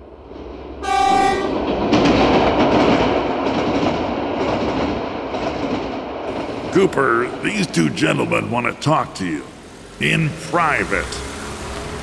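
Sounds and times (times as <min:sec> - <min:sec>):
train rumbling on rails: 0:00.0 - 0:12.0
subway train horn: 0:00.8 - 0:01.7.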